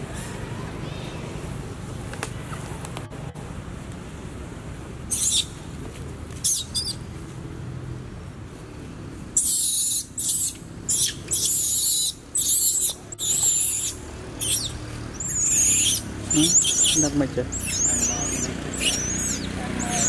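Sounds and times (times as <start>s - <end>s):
monkeys screaming: 5.1s - 5.5s, 9.4s - 20.0s.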